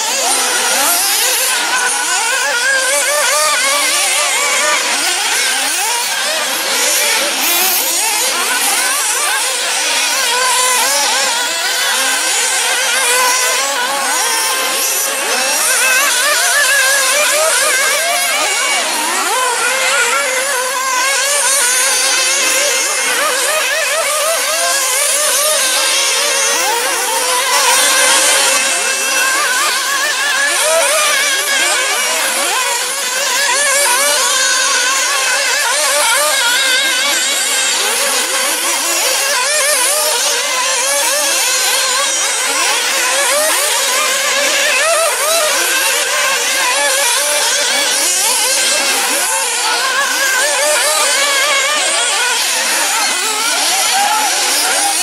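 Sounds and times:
rc car engines whining: 0.0s - 55.0s.

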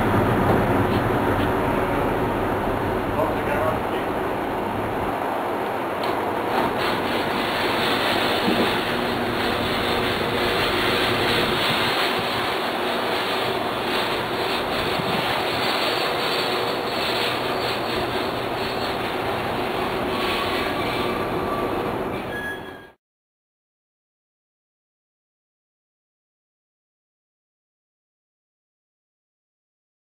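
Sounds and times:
motorized roll-up shutter door: 6.5s - 23.0s.

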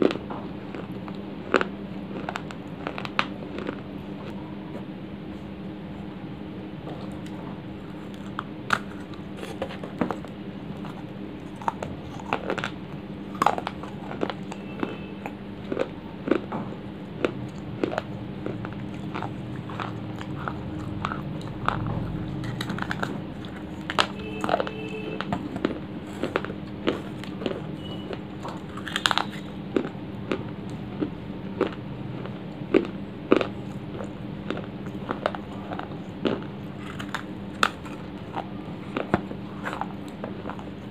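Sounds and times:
dry clay being chewed: 0.0s - 6.1s, 6.8s - 40.9s
low steady hum: 0.0s - 40.9s.

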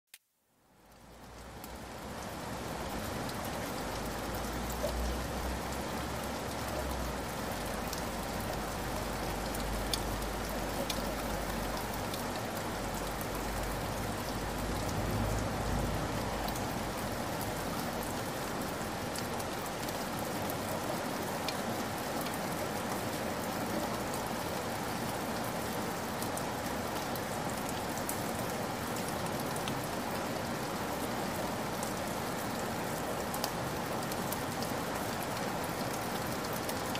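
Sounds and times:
heavy rain falling: 0.8s - 36.9s.

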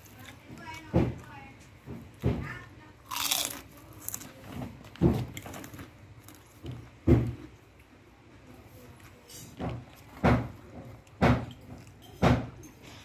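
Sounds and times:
man chewing food: 3.1s - 13.0s.

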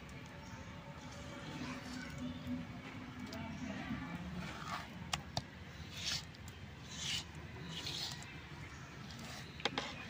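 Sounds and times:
hand scraping paste on grinding stone: 4.2s - 10.0s.

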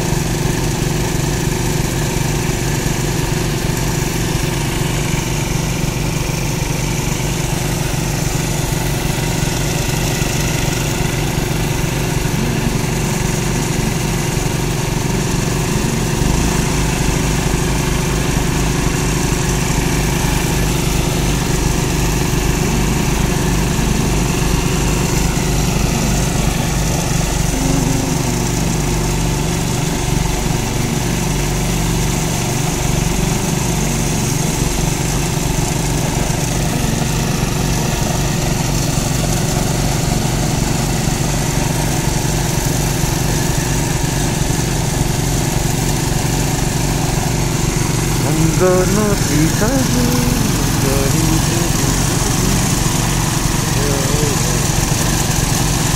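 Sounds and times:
small petrol engine running: 0.0s - 55.9s.

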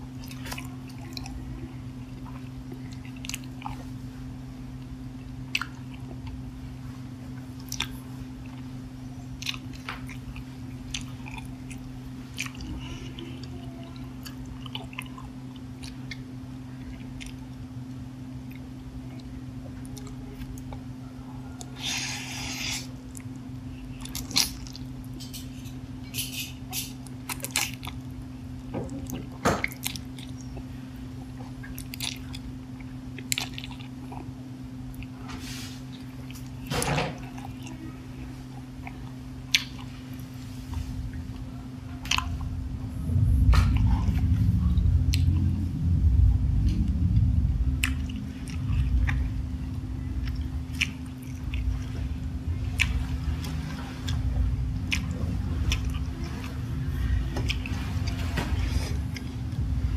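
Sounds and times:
low rumbling chewing: 0.0s - 59.9s
steady low hum: 0.0s - 59.9s
wet chewing: 4.8s - 6.4s, 7.5s - 20.9s, 21.6s - 35.2s, 35.8s - 42.5s, 43.1s - 59.7s.

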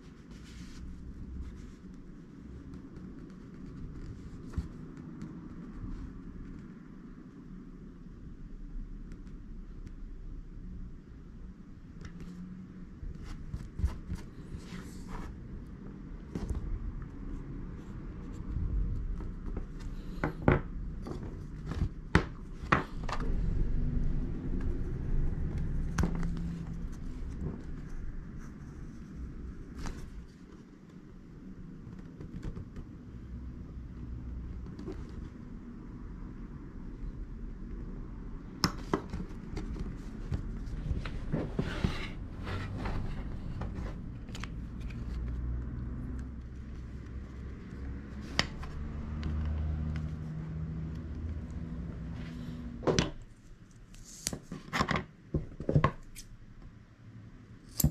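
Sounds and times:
rustling scrape: 0.0s - 1.9s, 39.1s - 45.3s
low steady hum: 0.0s - 54.5s
rubbing and shifting on table: 38.9s - 45.0s.

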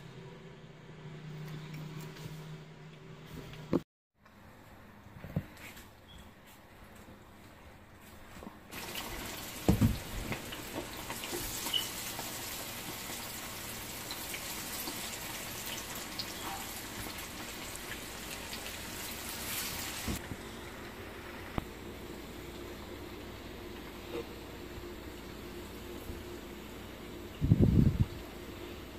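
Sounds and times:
chicken sizzling in hot oil: 8.7s - 24.4s.

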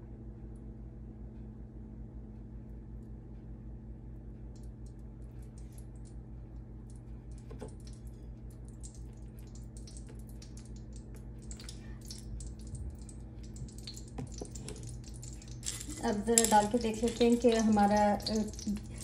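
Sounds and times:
steady low hum: 0.0s - 19.0s
faint small clicks and ticks: 4.4s - 19.0s.

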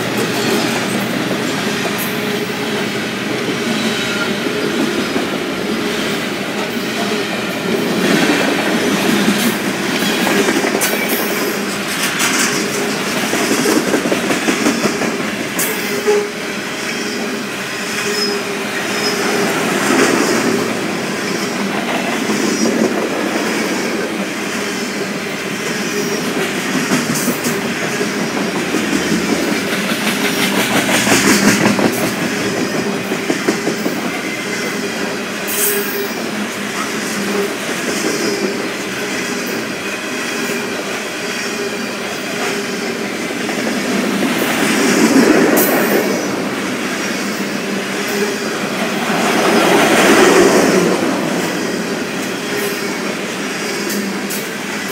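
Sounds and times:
freight train wheels rumbling: 0.0s - 54.9s
wheels clacking over rail joints: 25.7s - 34.8s.

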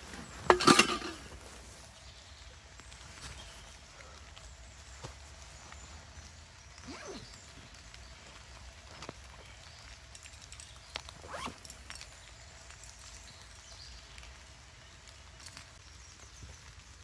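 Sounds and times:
zipper scraping open: 6.8s - 7.4s, 11.2s - 11.7s.

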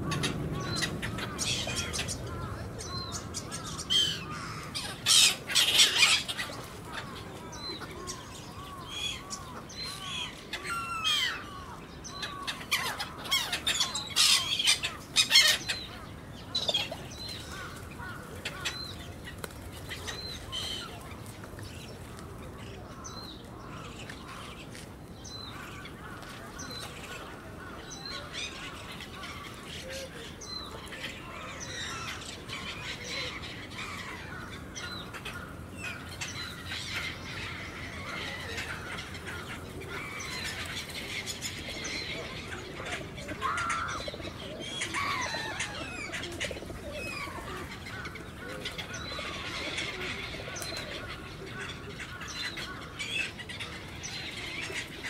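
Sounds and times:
gulls calling: 0.0s - 24.8s, 25.5s - 55.0s.

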